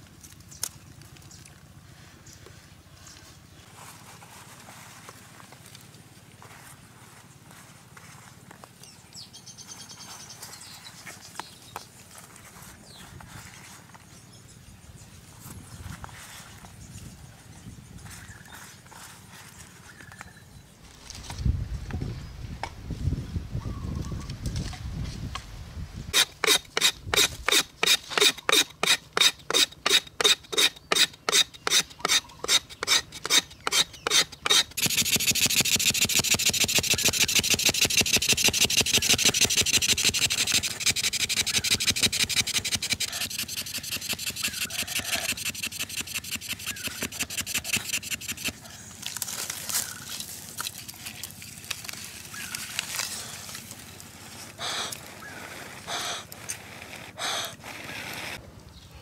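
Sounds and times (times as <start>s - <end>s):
wooden stick rasping in groove: 26.2s - 48.6s.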